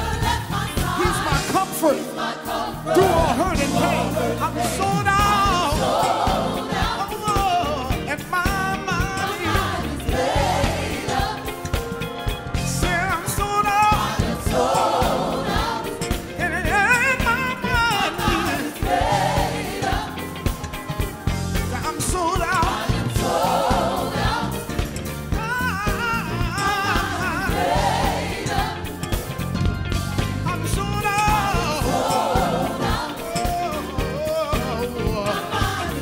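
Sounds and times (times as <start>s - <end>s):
choir singing: 0.0s - 29.4s, 30.6s - 36.0s
instrumental accompaniment: 0.0s - 36.0s
man singing gospel vocal runs: 0.8s - 2.2s, 2.9s - 6.2s, 6.8s - 10.1s, 12.7s - 14.6s, 16.4s - 19.0s, 21.7s - 23.0s, 30.4s - 32.2s, 33.1s - 36.0s.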